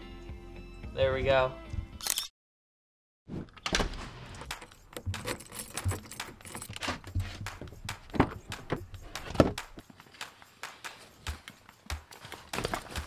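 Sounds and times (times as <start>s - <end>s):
loud thumps: 3.4s - 9.8s
handling clicks and knocks: 4.4s - 13.0s
keys jangling: 4.5s - 9.2s.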